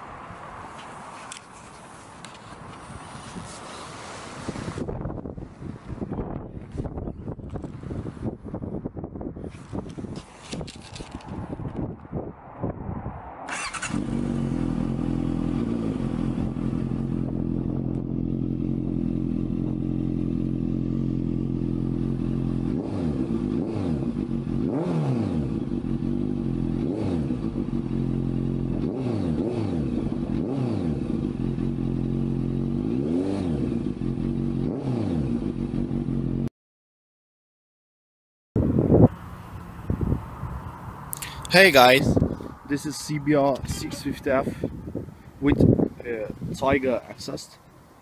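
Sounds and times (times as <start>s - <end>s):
motorcycle engine idling and revving: 13.5s - 36.5s, 38.6s - 47.8s.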